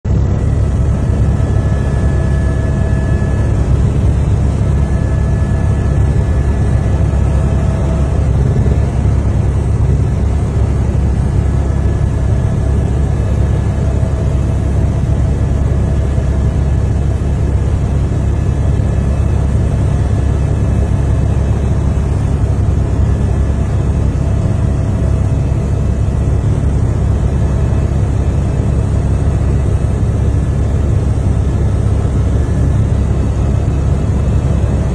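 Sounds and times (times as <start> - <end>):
aircraft engine drone: 0.1 - 34.9.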